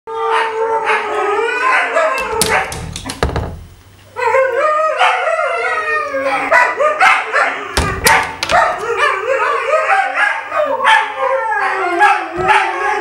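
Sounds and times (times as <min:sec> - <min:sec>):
dogs howling together: 0:00.1 - 0:02.2, 0:04.2 - 0:07.8, 0:08.5 - 0:13.0
sharp knocks: 0:02.2 - 0:04.0, 0:07.8 - 0:09.0
dogs yipping: 0:04.2 - 0:13.0.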